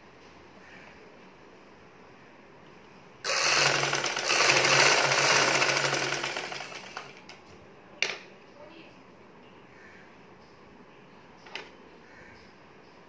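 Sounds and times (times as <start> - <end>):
sewing machine stitching: 3.3 - 7.2.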